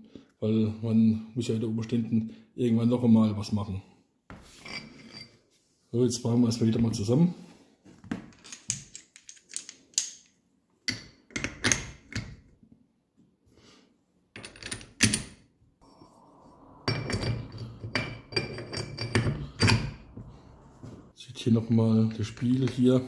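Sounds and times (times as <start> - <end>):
metal parts clicking and clunking: 8.2 - 10.3.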